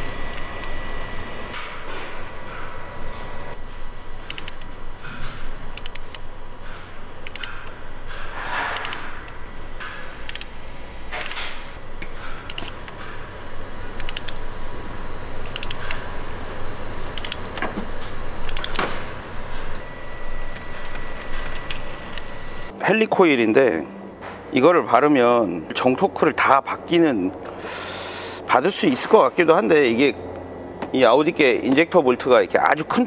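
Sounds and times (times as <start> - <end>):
metal scraping: 0.0 - 19.8
hand ratchet clicking: 4.2 - 4.7, 5.6 - 6.3, 7.1 - 7.8, 8.6 - 11.7, 12.3 - 13.0, 13.9 - 14.5, 15.4 - 18.8.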